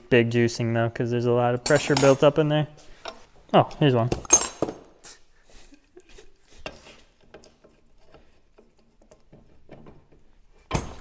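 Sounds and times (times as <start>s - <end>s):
metal hand tools clinking: 1.7s - 2.4s, 4.3s - 4.8s.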